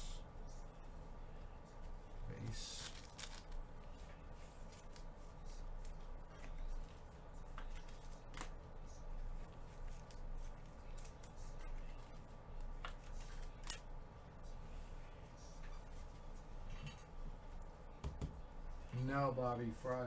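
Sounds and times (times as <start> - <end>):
low steady hum: 0.0 - 20.0
cards clicking and rustling: 2.7 - 3.6, 10.0 - 13.9.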